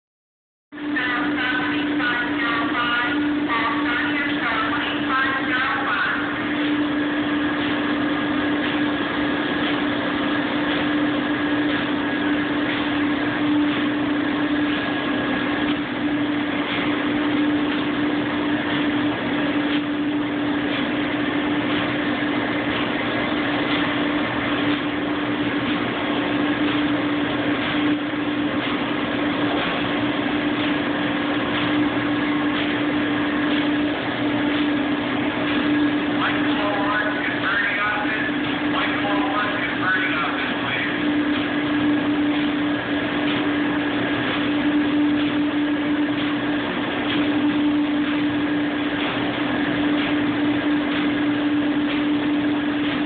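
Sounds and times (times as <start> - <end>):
machinery hum with rushing noise: 0.7 - 53.0.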